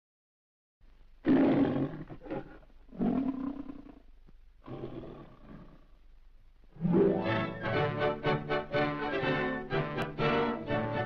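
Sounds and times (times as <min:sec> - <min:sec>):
lion roaring: 0:01.2 - 0:04.0, 0:04.6 - 0:05.9.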